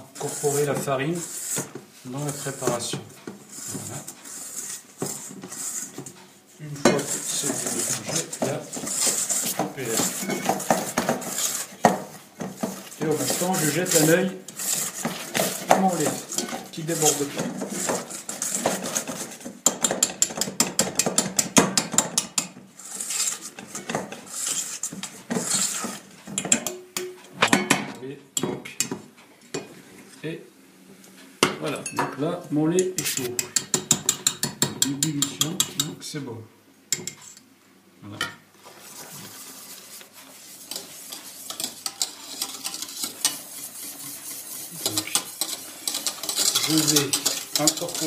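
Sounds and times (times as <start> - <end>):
whisk scraping metal bowl: 0.0 - 26.8, 32.8 - 35.9, 38.6 - 48.0
steady hiss: 38.5 - 48.0.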